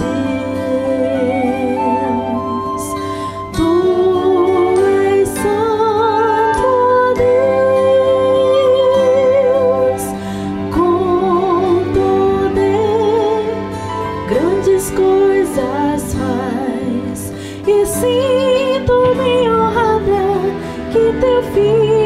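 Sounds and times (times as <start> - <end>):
sustained instrumental accompaniment: 0.0 - 22.0
woman singing a slow hymn: 0.0 - 22.0.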